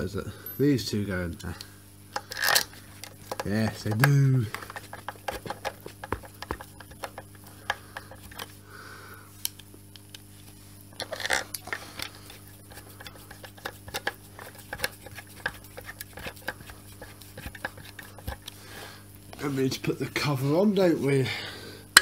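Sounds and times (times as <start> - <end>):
screwdriver clicking on metal casing: 3.3 - 8.5.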